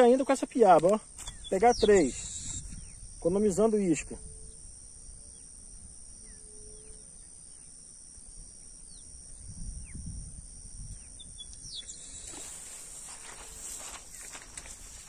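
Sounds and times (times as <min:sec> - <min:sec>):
high-pitched insect trill: 0:00.0 - 0:15.0
wind rumble on microphone: 0:01.3 - 0:06.3, 0:09.3 - 0:15.0
bird chirps: 0:11.1 - 0:12.5.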